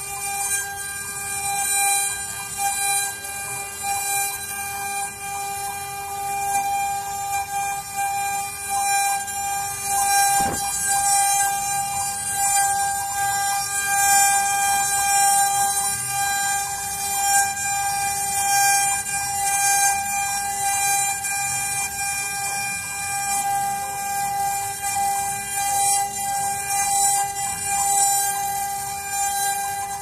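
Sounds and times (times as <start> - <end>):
router spindle whining: 0.0 - 30.0
hiss of bit cutting wood: 10.1 - 11.9.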